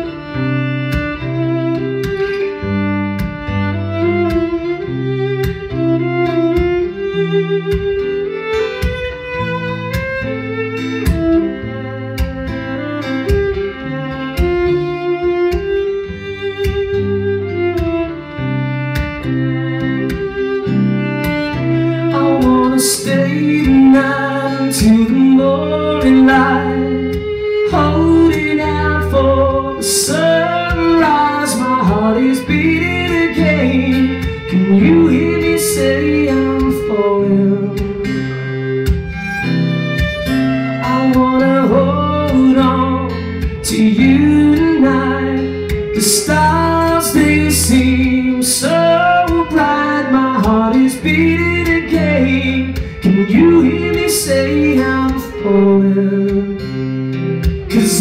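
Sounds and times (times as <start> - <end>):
strummed acoustic guitar: 0.0 - 58.0
violin melody: 0.0 - 58.0.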